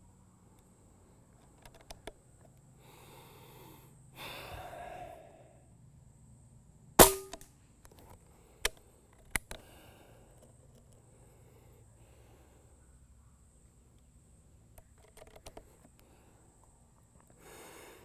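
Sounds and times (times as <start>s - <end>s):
small sharp clicks: 1.4s - 2.7s
air rifle shot: 7.0s - 7.4s.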